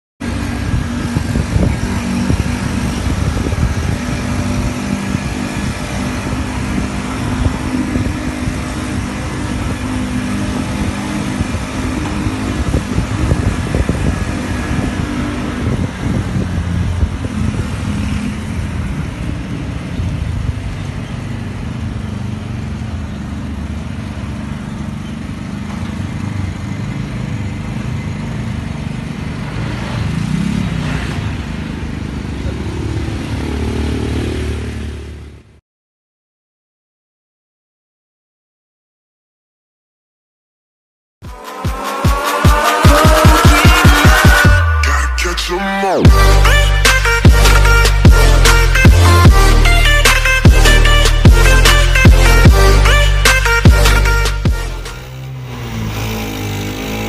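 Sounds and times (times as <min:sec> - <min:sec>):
engine revving: 0:00.2 - 0:20.4, 0:26.4 - 0:35.5, 0:41.8 - 0:57.0
motorbike engine: 0:00.2 - 0:35.6, 0:46.1 - 0:57.0
road noise: 0:00.2 - 0:35.6, 0:41.2 - 0:57.0
vehicle engine hum: 0:00.2 - 0:35.6, 0:41.3 - 0:57.0.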